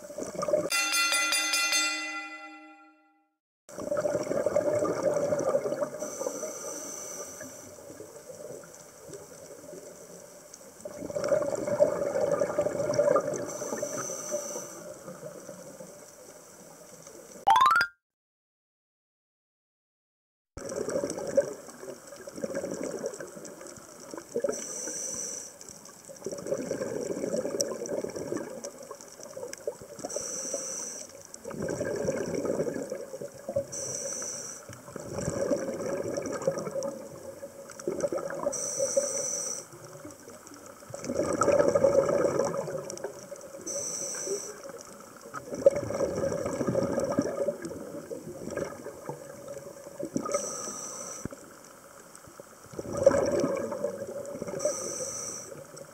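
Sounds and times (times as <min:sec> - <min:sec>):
rush of exhaled bubbles: 0:03.7 - 0:06.2, 0:10.8 - 0:13.9, 0:20.6 - 0:24.5, 0:26.2 - 0:30.0, 0:31.4 - 0:33.7, 0:34.9 - 0:38.6, 0:40.9 - 0:43.6, 0:45.4 - 0:50.6, 0:52.7 - 0:54.8
regulator inhalation hiss: 0:06.1 - 0:07.7, 0:13.5 - 0:14.9, 0:24.6 - 0:25.6, 0:30.1 - 0:31.2, 0:33.8 - 0:34.7, 0:38.6 - 0:39.8, 0:43.7 - 0:44.7, 0:50.3 - 0:51.4, 0:54.6 - 0:55.7.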